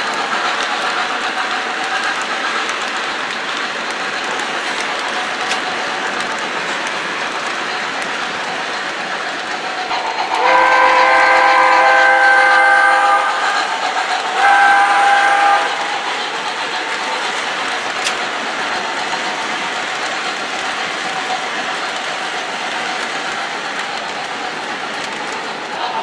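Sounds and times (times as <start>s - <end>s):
train rolling noise: 0.0s - 26.0s
model train steam whistle: 9.9s - 16.0s.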